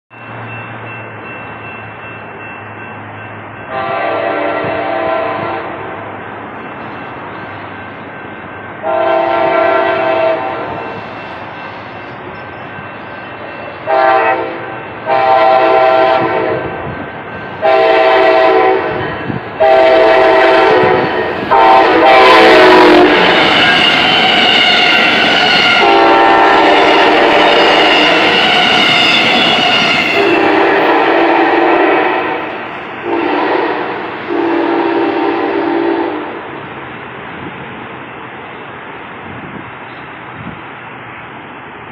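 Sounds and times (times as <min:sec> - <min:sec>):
train cars rushing past: 0:00.1 - 0:41.9
train horn blasts: 0:03.7 - 0:06.1, 0:08.8 - 0:11.0, 0:13.7 - 0:16.8, 0:17.6 - 0:36.5.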